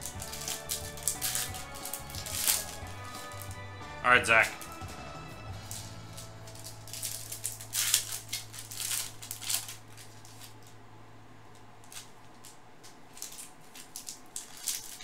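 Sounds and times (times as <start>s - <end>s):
foil wrapper crinkling and tearing: 0.0s - 3.7s, 4.3s - 10.8s, 11.8s - 15.0s
cards being handled: 0.0s - 10.8s
low steady hum: 0.0s - 15.0s.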